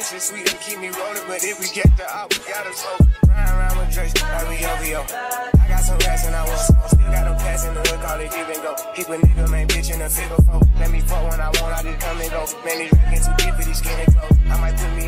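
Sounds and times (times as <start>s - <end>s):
hip hop music: 0.0s - 15.0s
deep bass notes: 3.2s - 8.3s, 9.2s - 12.4s, 13.0s - 15.0s.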